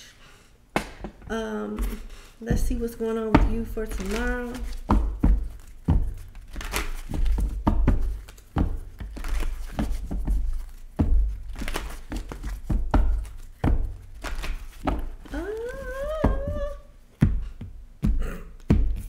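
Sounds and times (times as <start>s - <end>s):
cards being shuffled: 3.3s - 17.6s.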